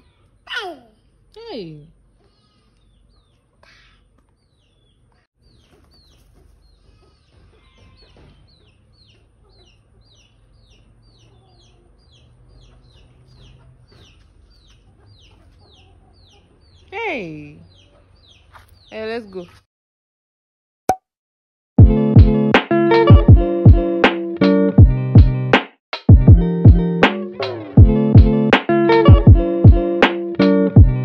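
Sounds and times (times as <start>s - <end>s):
chickens peeping: 2.0s - 19.6s.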